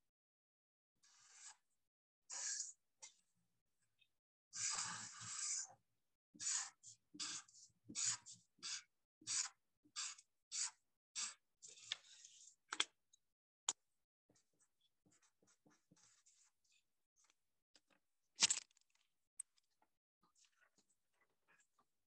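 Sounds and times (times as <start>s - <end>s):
marker drawing on paper: 1.0s - 1.7s, 6.4s - 12.6s, 14.4s - 16.8s.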